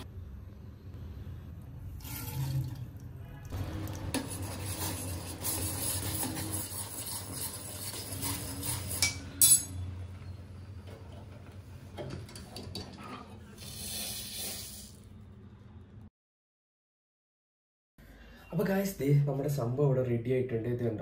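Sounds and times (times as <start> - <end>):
spoon clinking against pot: 9.0 - 9.8.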